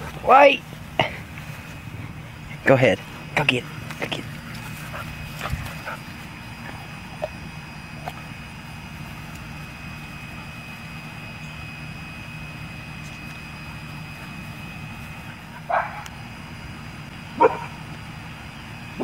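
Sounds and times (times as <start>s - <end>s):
low background hum: 0.0s - 19.0s
dog barking: 15.7s - 16.1s, 17.4s - 17.7s.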